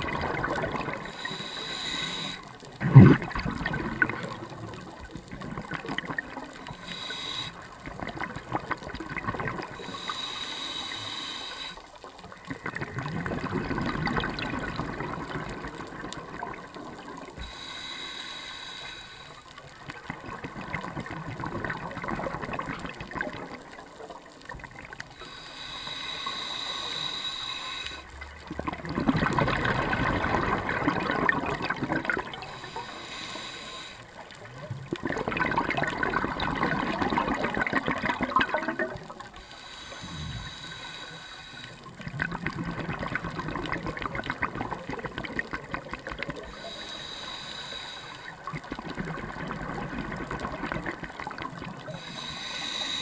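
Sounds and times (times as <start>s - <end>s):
bubbling exhale: 0.0s - 23.7s, 24.4s - 53.0s
regulator hissing inhales: 1.0s - 2.6s, 6.6s - 7.7s, 9.8s - 11.9s, 17.4s - 19.6s, 25.1s - 28.1s, 32.4s - 34.3s, 39.3s - 41.9s, 46.4s - 48.5s, 51.8s - 53.0s.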